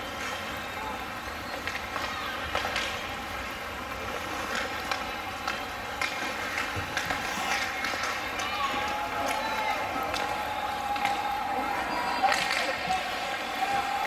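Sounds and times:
sticks and puck clacking: 1.5s - 3.1s, 4.4s - 11.4s, 12.1s - 13.3s
ice rink din: 4.5s - 14.0s.

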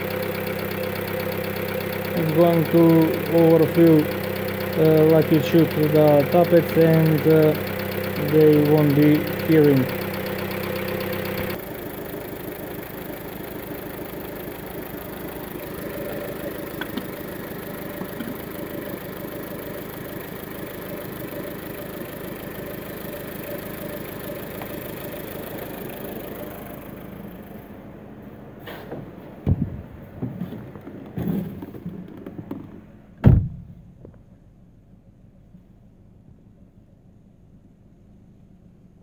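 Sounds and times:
light ticking of tappets: 0.0s - 11.6s
car engine idling: 0.0s - 39.0s.

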